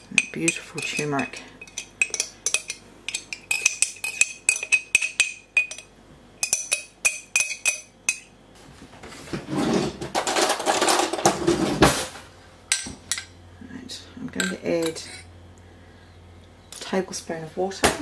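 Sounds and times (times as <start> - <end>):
metal spoon clinking on glass jar: 0.0 - 8.3.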